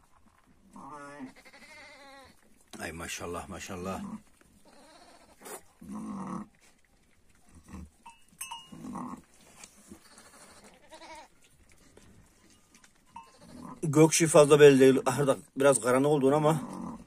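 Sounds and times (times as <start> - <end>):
sheep making low calls: 0.7 - 2.4, 9.9 - 11.3, 13.2 - 13.9
neck bell clinking: 8.0 - 8.9.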